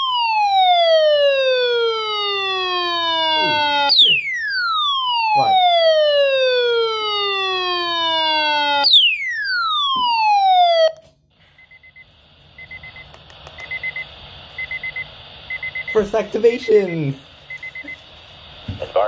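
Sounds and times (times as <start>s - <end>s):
falling siren-like electronic tone: 0.0s - 11.1s.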